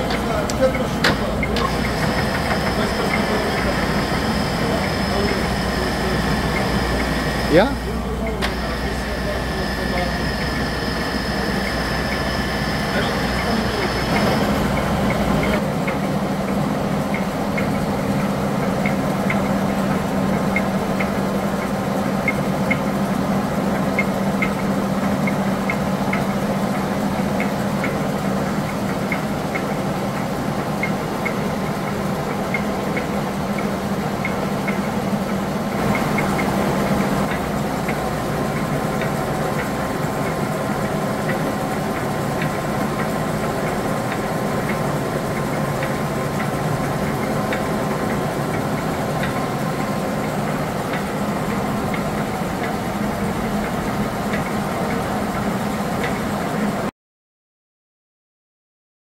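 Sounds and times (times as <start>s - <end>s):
light ticking: 0.0s - 15.6s
lathe humming: 0.0s - 56.8s.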